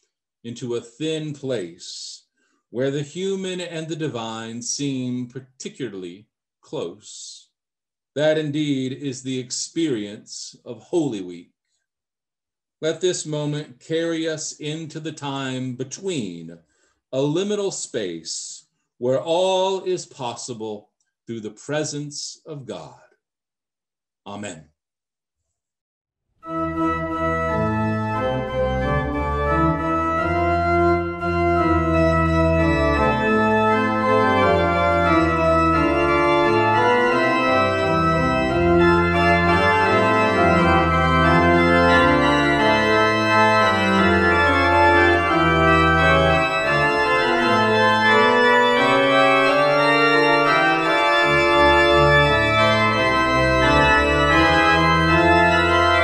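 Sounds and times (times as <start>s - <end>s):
organ music: 26.4s - 56.0s.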